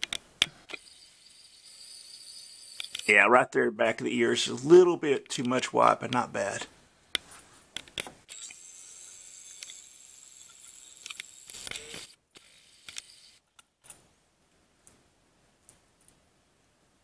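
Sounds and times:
camcorder zoom motor whirring: 0.7 - 3.1, 8.3 - 13.4.

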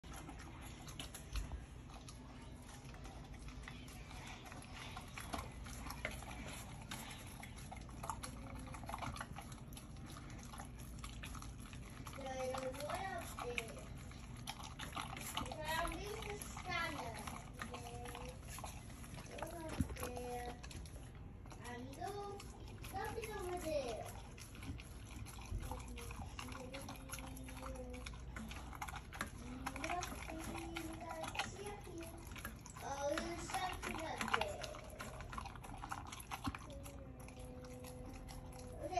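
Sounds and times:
dog chewing and smacking: 0.0 - 38.9.

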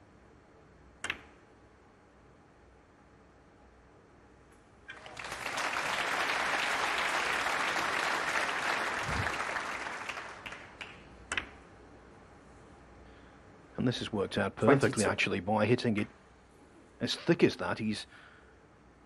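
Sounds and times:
crowd applauding: 4.9 - 11.0.

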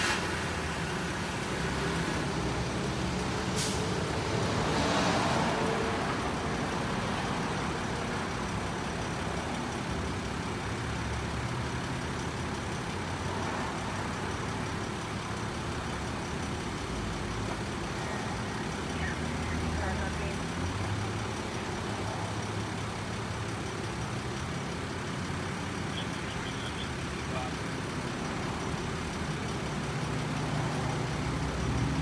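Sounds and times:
hiss of escaping air: 0.0 - 0.6, 3.5 - 4.0
ambulance engine idling: 0.0 - 4.3, 5.6 - 32.0.

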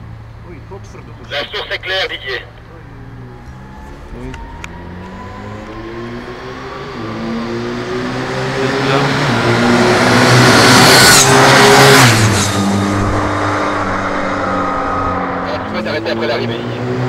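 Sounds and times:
electric motorcycle passing at speed: 9.4 - 15.5.

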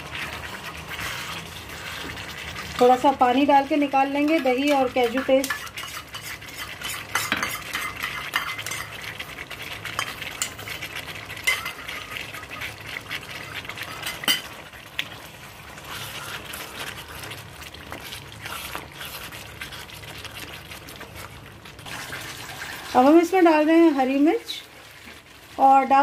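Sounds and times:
spatula scraping a pan: 0.0 - 14.6, 15.7 - 21.5
gravy sizzling: 0.0 - 26.0.

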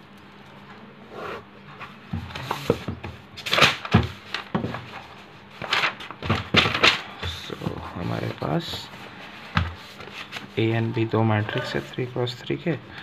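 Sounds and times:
paper pages rustling: 1.8 - 12.2.

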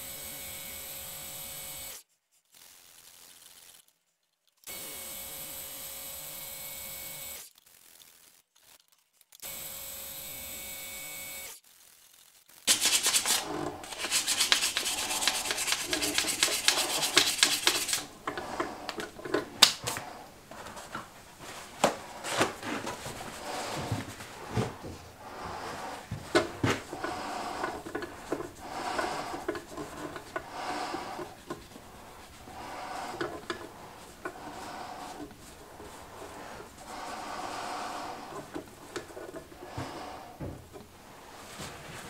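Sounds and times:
hands scraping and rubbing: 12.7 - 42.0.

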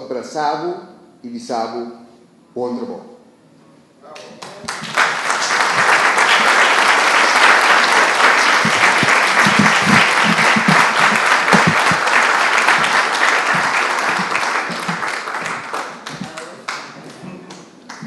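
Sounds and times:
audience applauding: 4.4 - 18.0.

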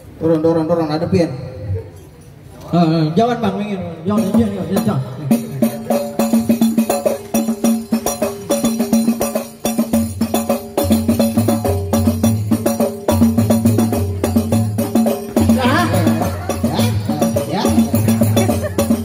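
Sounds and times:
frame drums beaten: 4.0 - 19.0.

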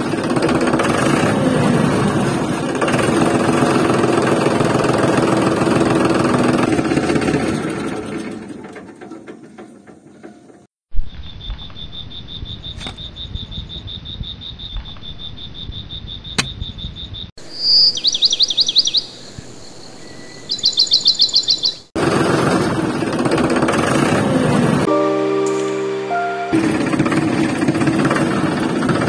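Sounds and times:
loud rough noise: 0.0 - 8.3, 22.0 - 24.9, 26.6 - 29.0
cricket trilling: 11.0 - 21.8
rapid high bird chirps: 11.2 - 21.9.

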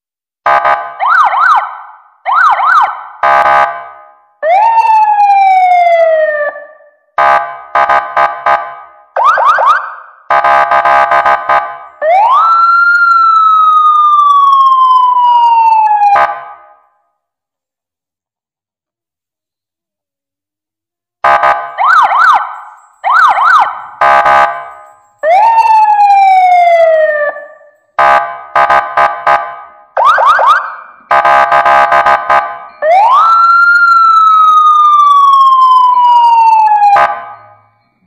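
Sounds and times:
electronic toy police siren: 9.2 - 16.3, 21.3 - 27.8, 30.0 - 32.2, 32.8 - 38.0.

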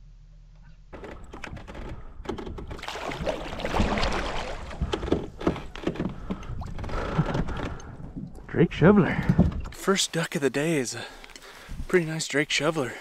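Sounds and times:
paddle strokes splashing: 2.7 - 6.5
small knocks and clicks: 4.8 - 8.4.

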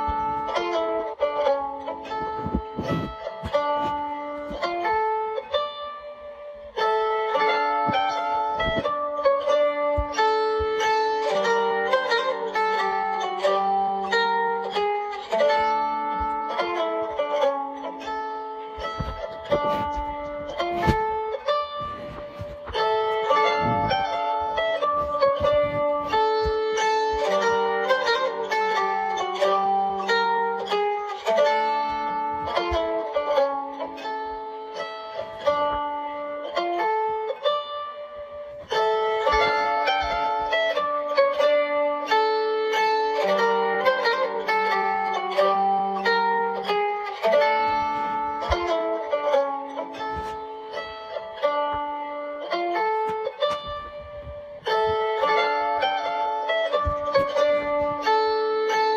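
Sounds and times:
plucked string music: 0.0 - 58.9.

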